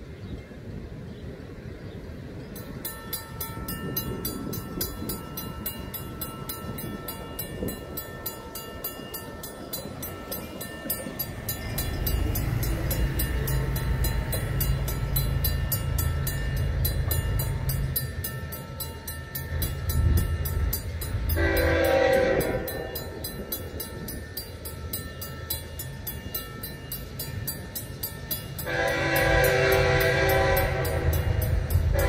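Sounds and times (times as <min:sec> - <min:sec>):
crossing bell ringing: 0:02.2 - 0:32.0
low engine rumble: 0:09.8 - 0:24.6
train air horn: 0:21.3 - 0:23.2, 0:28.6 - 0:32.0.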